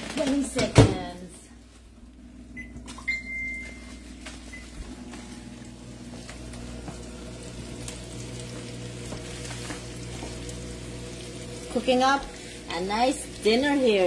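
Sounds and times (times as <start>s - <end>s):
microwave running hum: 0.0s - 14.0s
microwave keypad beeps: 2.6s - 4.9s.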